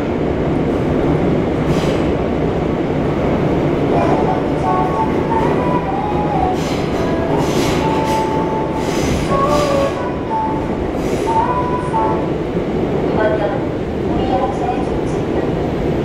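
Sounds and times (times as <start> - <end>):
subway wheels rumbling on track: 0.0 - 16.0.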